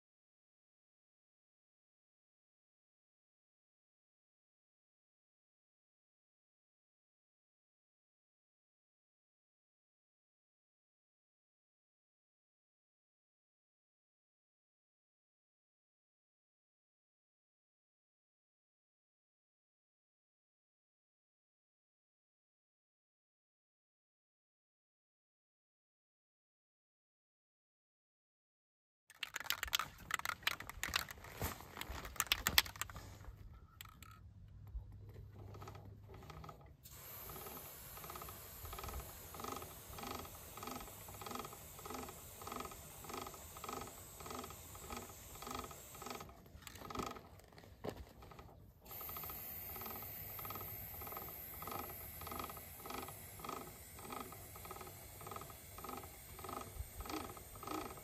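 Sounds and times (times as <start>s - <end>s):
riding gear clattering and rustling: 29.2s - 36.8s, 45.5s - 48.7s
drivetrain whirring: 29.2s - 58.0s
aerosol spray hiss: 36.9s - 46.2s, 48.9s - 58.0s.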